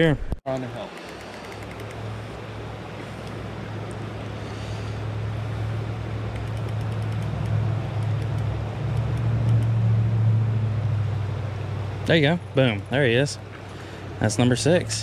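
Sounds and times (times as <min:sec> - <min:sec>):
low engine-like hum: 0:00.1 - 0:15.0
running creek water: 0:00.6 - 0:10.0.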